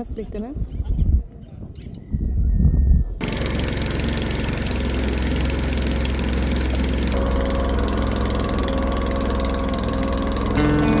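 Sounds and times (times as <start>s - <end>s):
motorboat engine rumbling: 3.2s - 11.0s.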